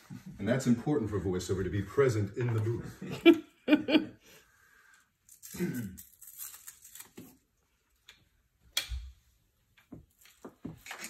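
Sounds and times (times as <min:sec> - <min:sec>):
velcro straps tearing: 0:05.3 - 0:07.5.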